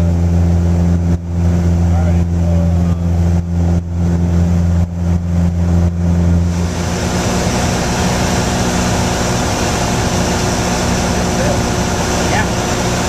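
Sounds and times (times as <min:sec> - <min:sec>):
airplane engine droning in cabin: 0:00.0 - 0:13.0
rush of air: 0:05.3 - 0:13.0.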